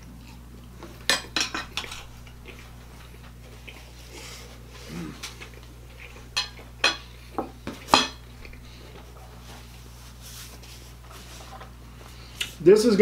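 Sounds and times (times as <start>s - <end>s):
cutlery clinking on a plate: 6.4s - 7.0s, 7.7s - 8.2s.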